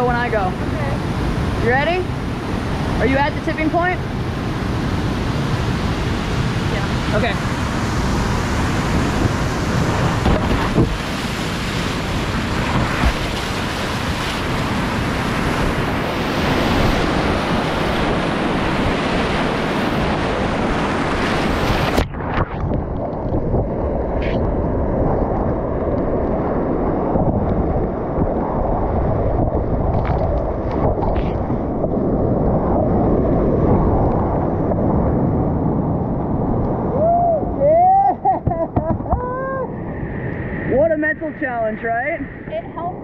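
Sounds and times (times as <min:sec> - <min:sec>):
wind on microphone: 0:00.0 - 0:43.0.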